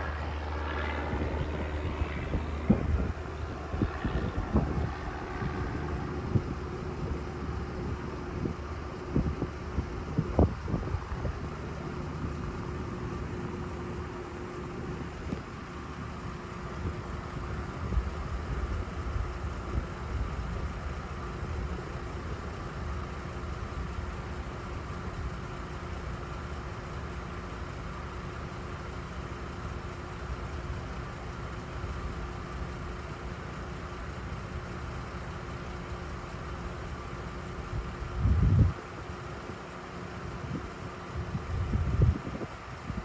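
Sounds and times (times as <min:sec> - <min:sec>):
low rumble: 0:00.0 - 0:19.6
distant propeller plane droning: 0:00.0 - 0:43.0.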